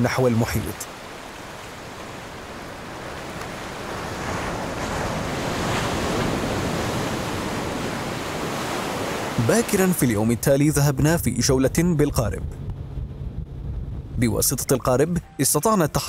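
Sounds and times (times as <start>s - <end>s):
waves breaking on beach: 0.0s - 10.7s.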